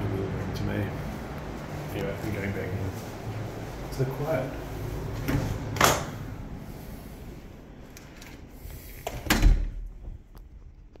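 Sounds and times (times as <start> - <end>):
door shutting with booming thud: 9.1 - 10.0.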